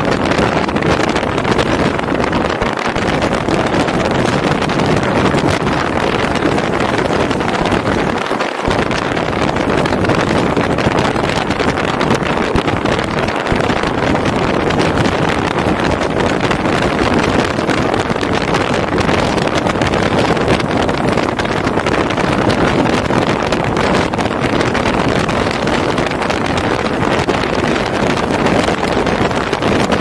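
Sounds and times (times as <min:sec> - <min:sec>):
wind buffeting microphone: 0:00.0 - 0:30.0
wind rushing: 0:00.0 - 0:30.0.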